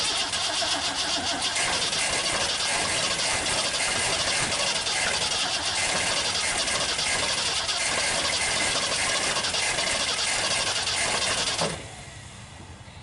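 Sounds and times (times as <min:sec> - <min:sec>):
engine cranking on starter: 0:00.0 - 0:12.0.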